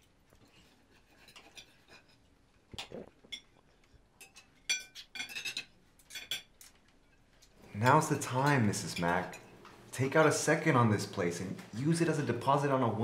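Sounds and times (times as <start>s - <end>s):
cutlery clinking on plates: 1.0s - 2.2s, 4.2s - 7.2s, 7.8s - 9.6s.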